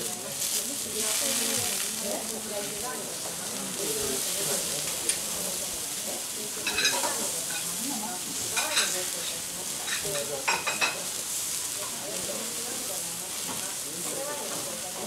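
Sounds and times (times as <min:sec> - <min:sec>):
meat sizzling on griddle: 0:00.0 - 0:15.0
spatula clinking on metal: 0:06.6 - 0:07.7, 0:09.8 - 0:11.0.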